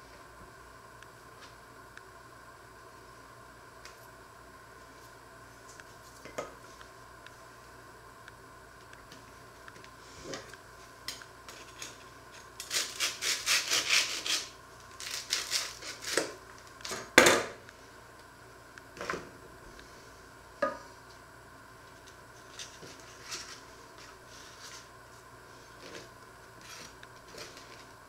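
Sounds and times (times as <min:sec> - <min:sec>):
knife sawing through bread: 0:12.6 - 0:14.5.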